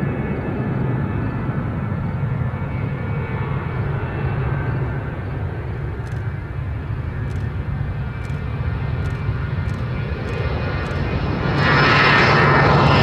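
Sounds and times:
jet engines at takeoff power: 0.0 - 13.0.

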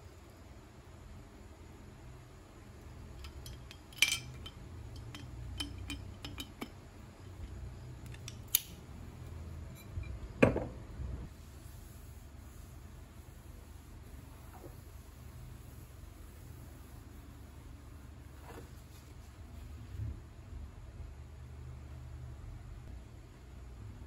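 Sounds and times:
glassware clinking: 3.2 - 6.7.

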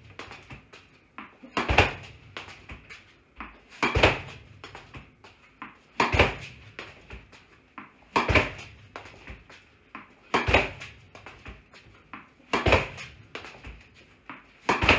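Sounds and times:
tennis ball struck with racket: 0.1 - 14.9
ball thudding into rebounder: 1.5 - 2.8, 3.8 - 5.1, 6.0 - 7.3, 8.1 - 9.4, 10.4 - 11.6, 12.5 - 13.4, 14.6 - 14.9.

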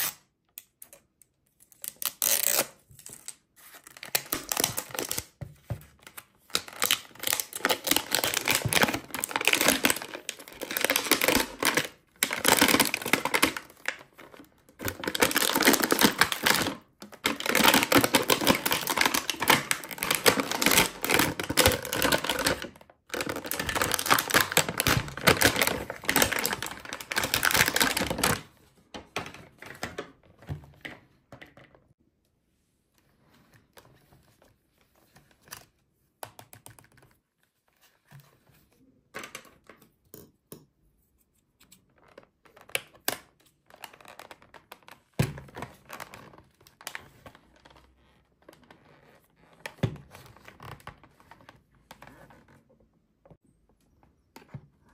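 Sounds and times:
plastic wrap crinkling: 6.5 - 28.4.

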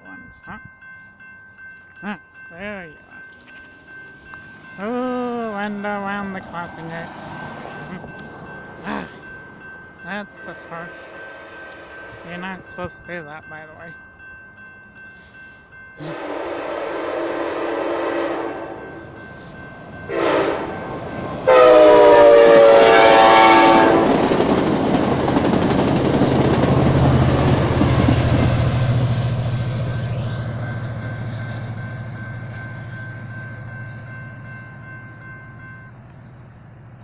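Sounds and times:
train passing with low rumble: 0.0 - 37.0
train horn blasts: 16.0 - 19.0, 20.1 - 20.8, 21.4 - 24.3.

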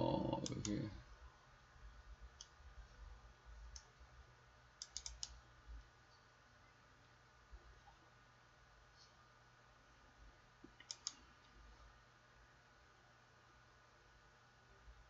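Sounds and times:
computer mouse clicks: 0.4 - 0.8, 2.3 - 2.6, 3.7 - 4.0, 4.8 - 5.4, 10.6 - 11.6.

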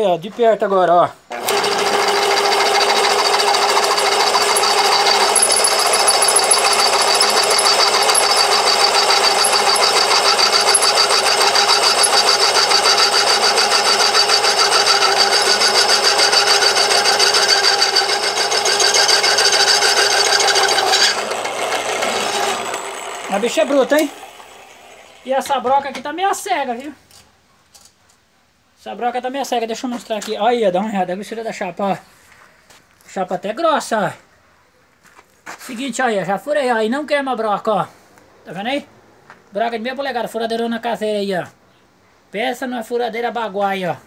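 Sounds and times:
drill whirring through steel: 1.3 - 25.6.

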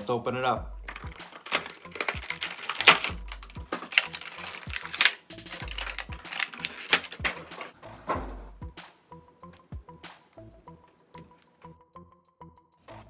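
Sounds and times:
plastic packaging clicks and crinkling: 0.9 - 7.8.

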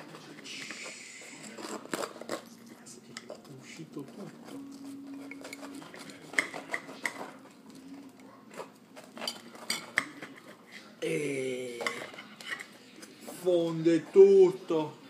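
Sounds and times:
knife and fork clinking on platter: 1.4 - 10.8, 11.7 - 12.8.

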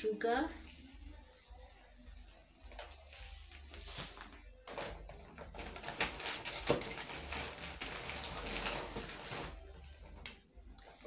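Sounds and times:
shopping bags rustling: 2.8 - 11.0.

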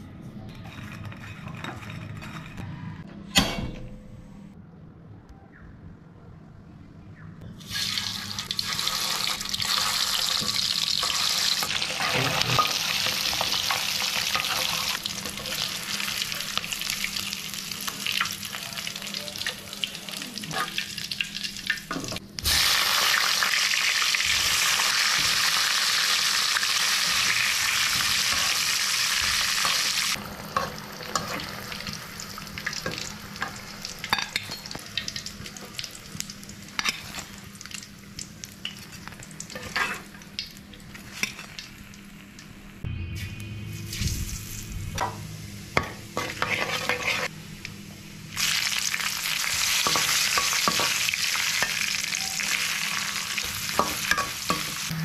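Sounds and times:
food deep-frying in hot oil: 7.6 - 42.7, 48.3 - 55.0.

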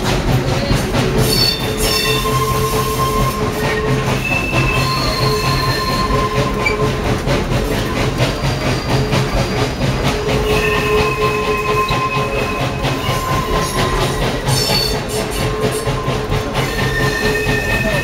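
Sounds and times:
train wheels clattering: 0.0 - 18.0
wheels squealing: 0.5 - 18.0.

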